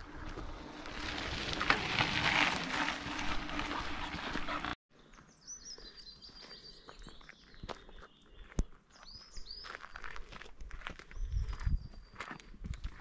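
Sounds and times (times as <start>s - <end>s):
bicycle on gravel: 0.0s - 4.8s
footsteps on gravel: 0.1s - 13.0s.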